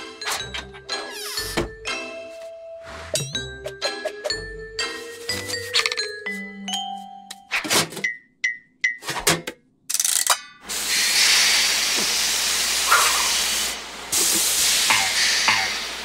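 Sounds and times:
hiss of escaping steam: 0:10.7 - 0:16.0.

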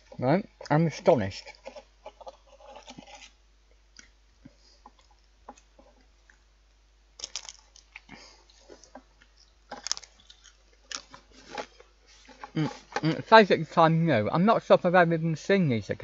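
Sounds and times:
crisp crunching: 0:00.0 - 0:04.2, 0:07.2 - 0:13.3.

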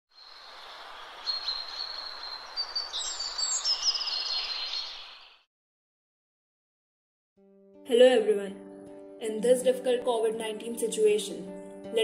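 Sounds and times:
outdoor ambience hiss: 0:00.1 - 0:05.4
birds chirping and singing: 0:00.2 - 0:05.4.

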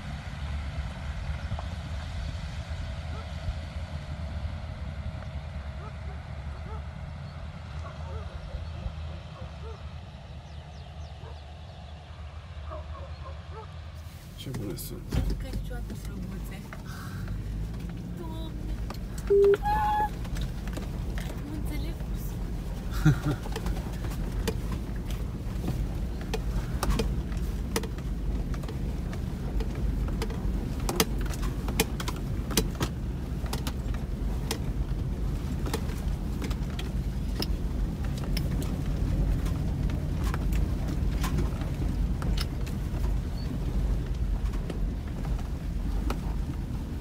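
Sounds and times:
engine and drivetrain rumble: 0:00.0 - 0:47.0
car body rattling: 0:14.5 - 0:47.0
tyres clicking over loose stones: 0:20.1 - 0:46.8.

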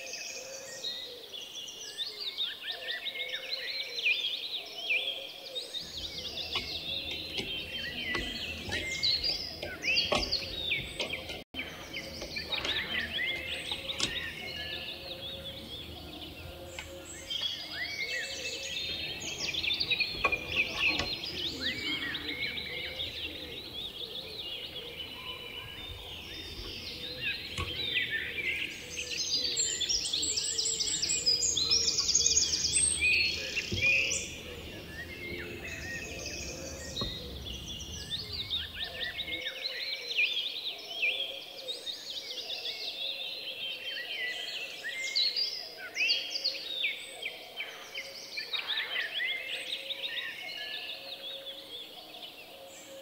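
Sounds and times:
small birds chirping: 0:00.0 - 0:53.0
low background rumble: 0:32.6 - 0:39.4.

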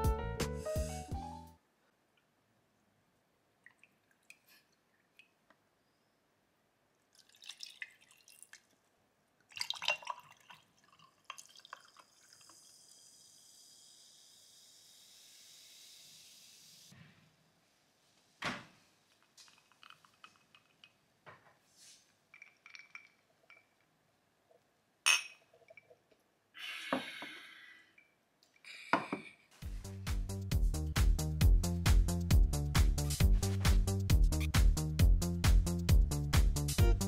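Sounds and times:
coffee pouring over ice: 0:07.2 - 0:08.7, 0:09.5 - 0:14.1, 0:19.4 - 0:21.0
ice clinking in glass: 0:09.6 - 0:10.6, 0:22.3 - 0:23.8, 0:25.1 - 0:25.9
tonic water fizzing hiss: 0:11.5 - 0:17.0.

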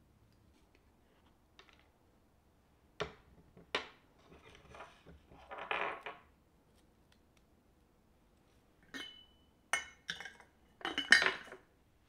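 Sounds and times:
spoon clinking against glass jar: 0:08.9 - 0:11.6.

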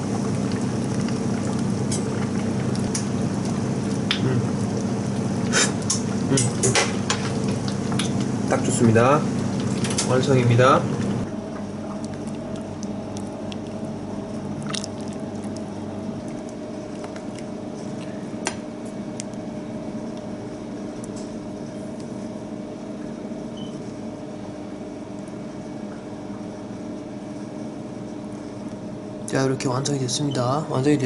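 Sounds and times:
steady kitchen hum: 0:00.0 - 0:31.0.

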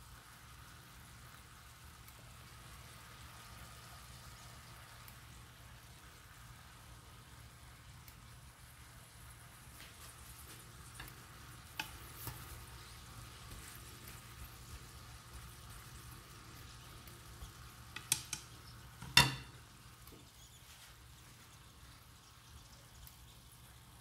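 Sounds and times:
food sizzling in a pan: 0:00.0 - 0:24.0
spatula knocking against pan: 0:18.0 - 0:19.6.

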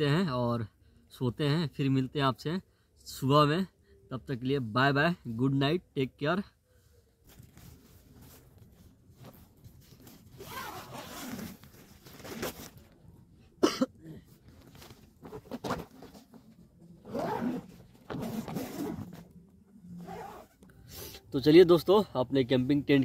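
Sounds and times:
tent fabric rustling: 0:07.2 - 0:13.0, 0:14.4 - 0:19.3, 0:19.9 - 0:20.6
tent zipper rasping: 0:09.9 - 0:12.8, 0:15.2 - 0:16.4, 0:17.0 - 0:19.3, 0:19.9 - 0:20.6.

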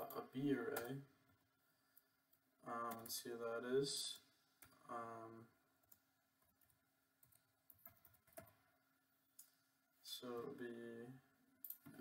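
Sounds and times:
computer keyboard keystrokes: 0:07.2 - 0:08.6.

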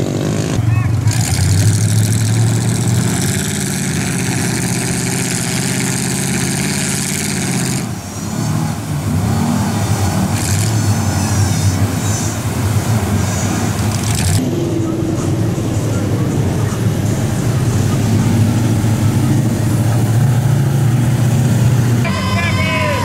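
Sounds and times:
truck engines under load: 0:00.0 - 0:23.0.

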